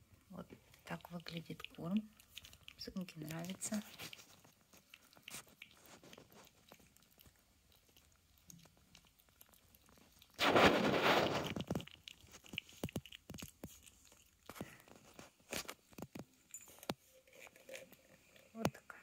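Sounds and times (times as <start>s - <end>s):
puppy eating from metal bowl: 0.6s - 19.0s
loud rustling burst: 10.4s - 11.6s.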